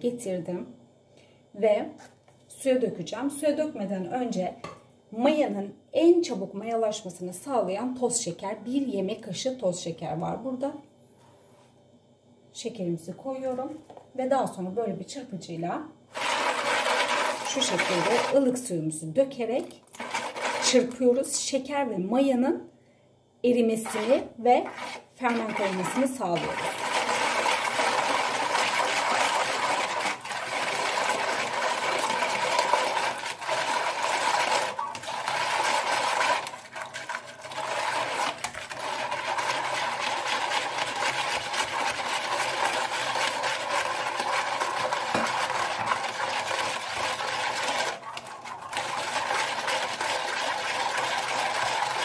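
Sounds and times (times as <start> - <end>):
water pouring: 16.1 - 18.4, 19.9 - 20.9, 23.8 - 52.0.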